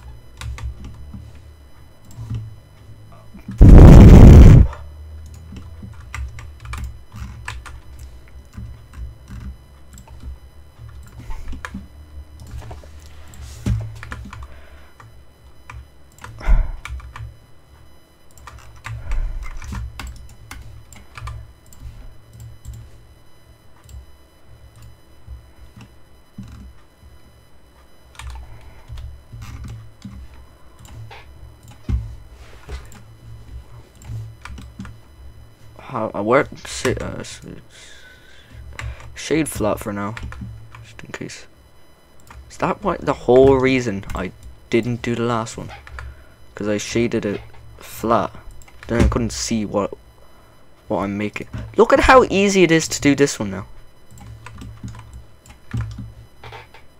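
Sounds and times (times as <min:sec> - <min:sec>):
low steady rumble: 0:00.0 - 0:35.6
computer keyboard clicking: 0:05.2 - 0:07.8, 0:18.3 - 0:22.8, 0:28.1 - 0:30.2, 0:54.1 - 0:56.7.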